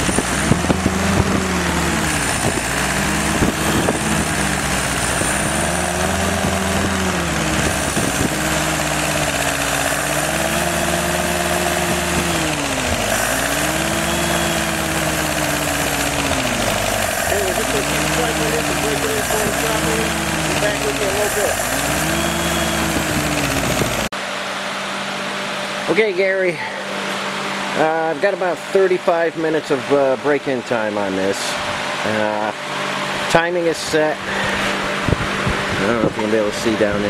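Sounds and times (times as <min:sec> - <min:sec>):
engine revving on test stand: 0:00.0 - 0:24.2.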